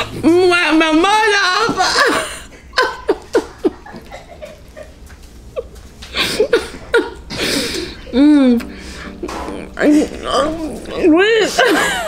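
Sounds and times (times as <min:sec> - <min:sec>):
person humming mm: 0:08.1 - 0:11.0.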